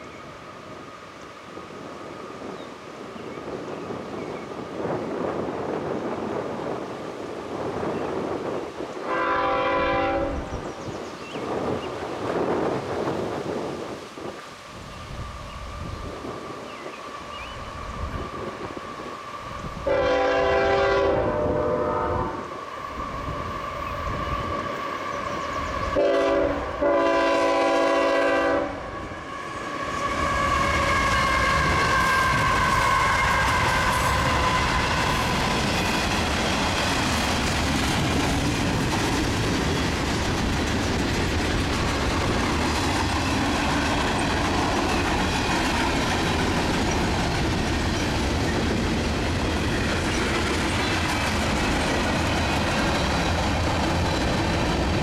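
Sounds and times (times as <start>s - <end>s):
locomotive air horn: 9.0s - 10.5s, 19.8s - 22.5s, 26.0s - 34.8s
train cars clacking over rails: 30.0s - 55.0s.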